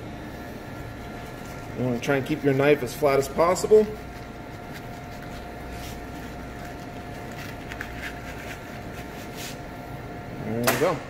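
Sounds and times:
steady background hum: 0:00.0 - 0:11.0
knife scraping fish fillet: 0:04.0 - 0:09.6.

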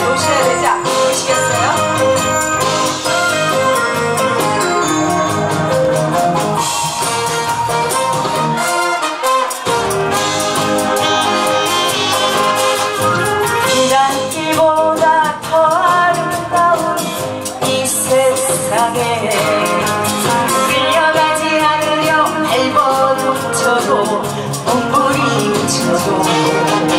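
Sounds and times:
woman singing into microphone: 0:00.0 - 0:02.5, 0:13.6 - 0:26.9
amplified accompaniment with beat: 0:00.0 - 0:26.9
bass: 0:00.0 - 0:26.9.

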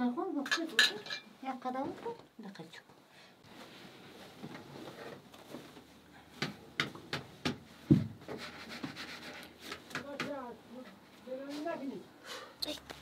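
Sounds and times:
bedding rustling: 0:03.4 - 0:12.0
dull thump: 0:07.8 - 0:08.3.

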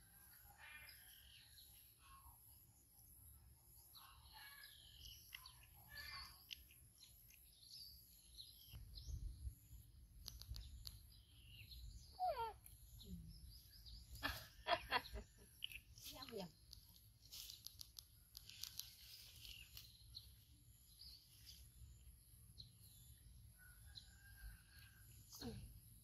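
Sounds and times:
faint birds chirping: 0:00.0 - 0:26.0
sharp clicks: 0:10.2 - 0:11.1, 0:17.6 - 0:19.0.

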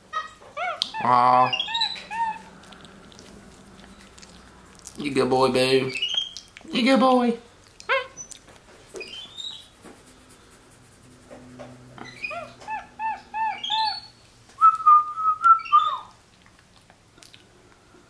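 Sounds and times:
monkey whistle-like chirps: 0:12.1 - 0:16.1.

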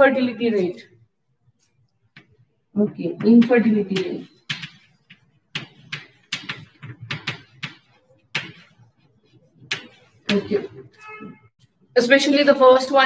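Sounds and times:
chalk writing on chalkboard: 0:01.6 - 0:11.0.

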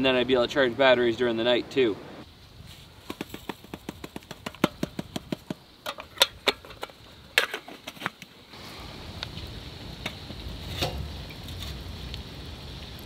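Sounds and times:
metal percolator clicks and taps: 0:03.1 - 0:08.3.

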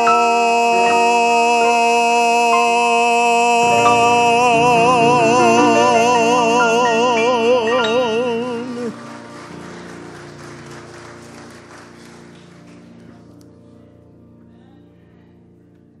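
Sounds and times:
baritone voice singing: 0:00.0 - 0:09.0
accompaniment chord ringing: 0:00.0 - 0:09.1
light applause: 0:08.3 - 0:13.5.

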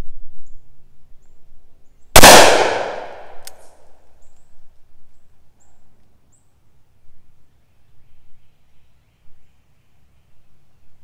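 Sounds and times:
revolver gunshot echoing: 0:02.2 - 0:03.4.

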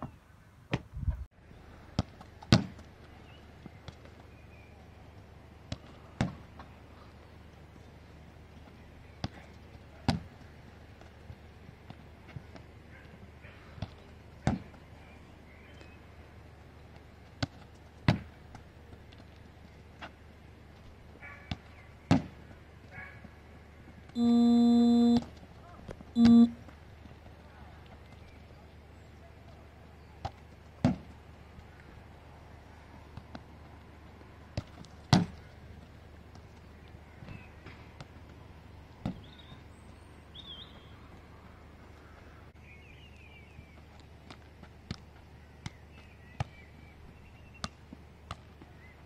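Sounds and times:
low steady hum: 0:24.1 - 0:27.1
buzzy electronic tone: 0:24.2 - 0:25.2, 0:26.2 - 0:26.6.

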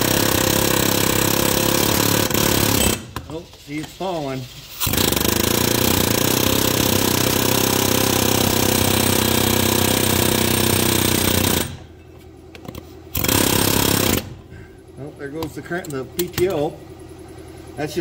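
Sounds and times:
pneumatic air hammer: 0:00.0 - 0:12.0, 0:12.6 - 0:14.7.

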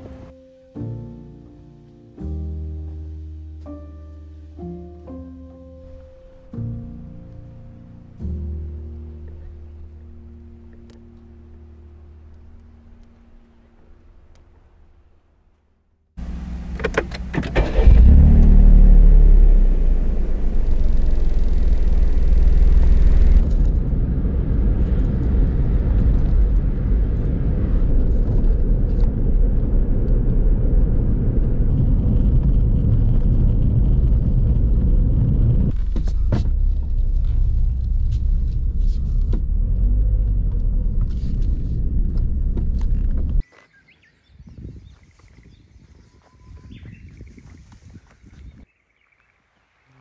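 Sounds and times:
car engine and road noise: 0:16.2 - 0:43.5.

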